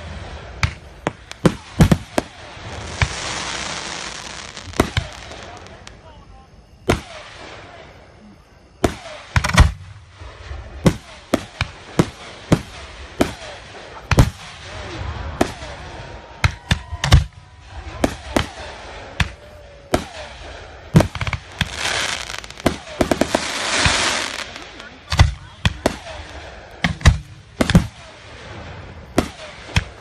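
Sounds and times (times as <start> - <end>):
fireworks hiss: 0.0 - 6.0, 17.5 - 30.0
fireworks bangs: 0.0 - 30.0.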